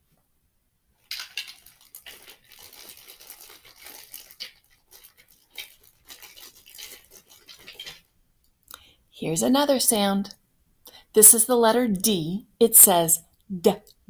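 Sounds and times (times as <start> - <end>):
hands rummaging rustling: 1.0 - 8.1.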